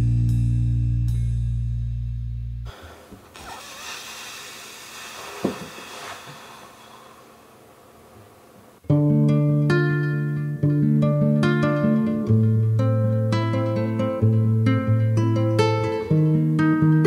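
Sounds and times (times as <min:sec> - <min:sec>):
pitch sliding sound: 0:02.7 - 0:07.6
faint hiss: 0:02.7 - 0:08.9
guitar playing: 0:08.8 - 0:17.0.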